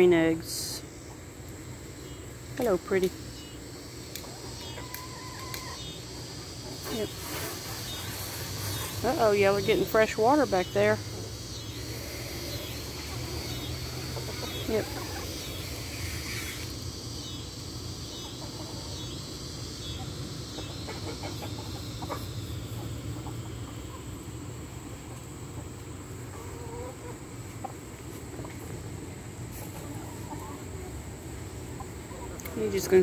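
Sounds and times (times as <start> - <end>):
insect chirring: 0.0 - 27.5
chickens clucking: 0.8 - 33.0
chickens pecking: 1.1 - 16.8, 17.6 - 33.0.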